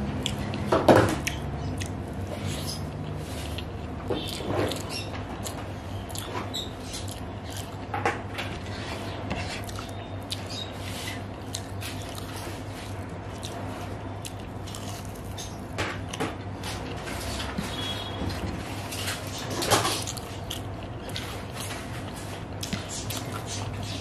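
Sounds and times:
chewing and mouth smacks: 0.1 - 7.9, 9.4 - 16.2, 19.0 - 24.0
fingers squishing food: 8.7 - 16.2.

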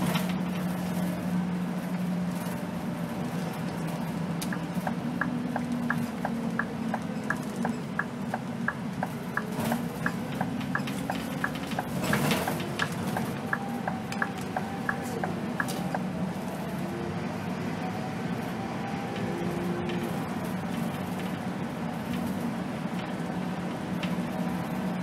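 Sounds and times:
bus engine drone: 0.0 - 25.0
turn signal indicator ticking: 4.4 - 16.0.

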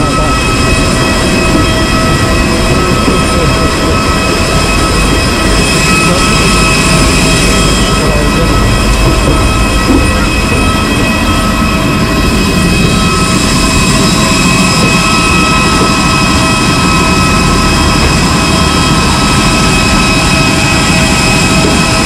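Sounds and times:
jet engine whine: 0.0 - 22.0
low rumble: 0.0 - 22.0.

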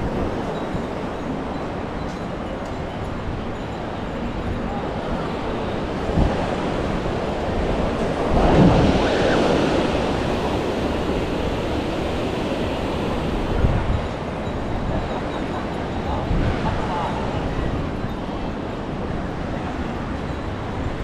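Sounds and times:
surf washing onto beach: 5.9 - 14.6
wind thumping on microphone: 6.0 - 15.3.

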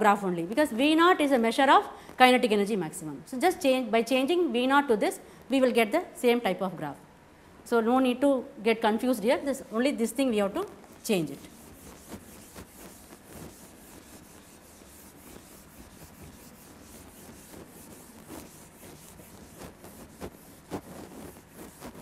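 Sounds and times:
eraser wiping whiteboard: 9.6 - 22.0.

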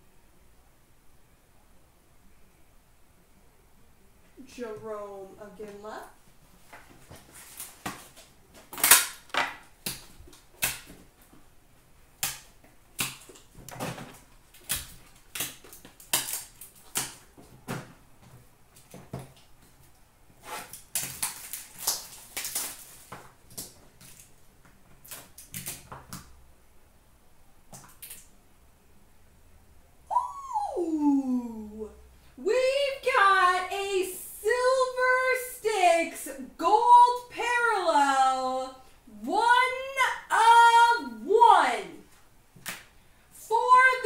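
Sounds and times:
rustling and handling: 6.2 - 11.9, 12.5 - 26.2.

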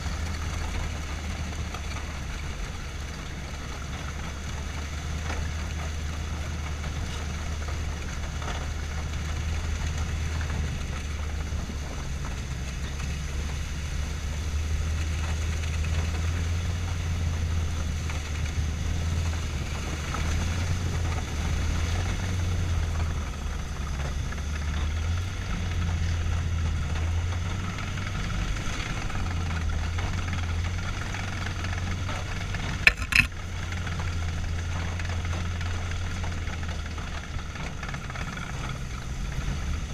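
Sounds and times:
tracked vehicle engine humming: 0.0 - 39.9.

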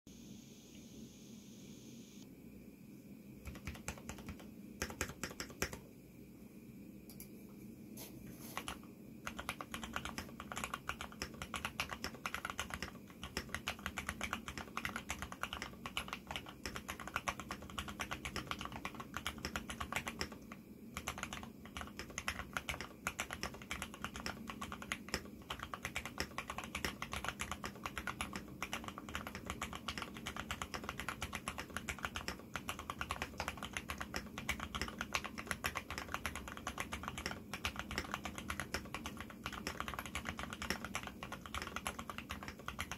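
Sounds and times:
fast typing on mechanical keyboard: 3.4 - 5.8, 8.6 - 42.9.

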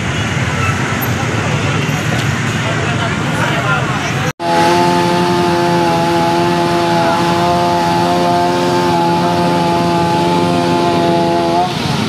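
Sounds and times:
chainsaw cutting: 4.4 - 11.8.

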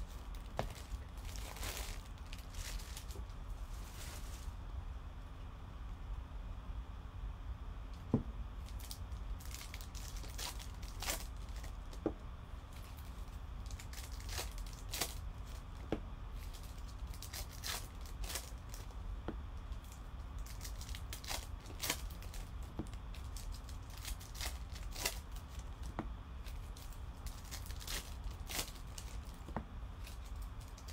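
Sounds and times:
wrapper tearing and crinkling: 0.0 - 4.5, 8.6 - 12.0, 12.7 - 15.7, 16.4 - 18.9, 19.8 - 30.9
low steady hum: 0.0 - 30.9.

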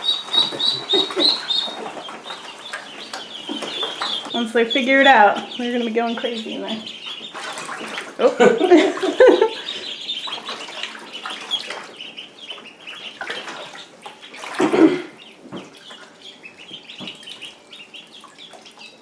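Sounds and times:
ducklings peeping: 0.0 - 19.0
water splashing: 0.0 - 19.0.

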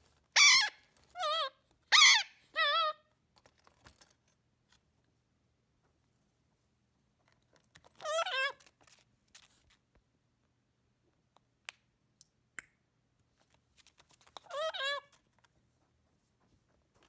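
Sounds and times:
parrot quavering calls: 0.4 - 3.0, 14.5 - 15.1
small clicks and scratches: 7.2 - 10.0, 13.2 - 17.0.

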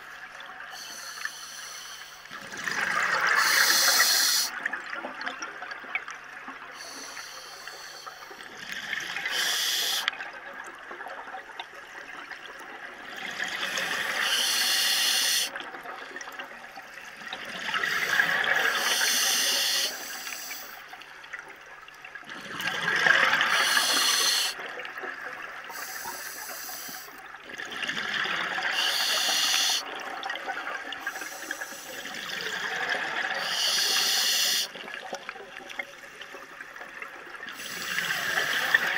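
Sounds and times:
regulator breathing hiss: 0.7 - 2.3, 3.3 - 4.6, 6.8 - 8.4, 9.2 - 10.1, 13.9 - 15.5, 17.9 - 20.9, 23.4 - 24.6, 25.7 - 27.2, 28.7 - 29.9, 31.1 - 32.1, 33.4 - 34.8, 37.6 - 38.9
exhaled bubbles rushing: 2.4 - 3.7, 22.2 - 23.8.

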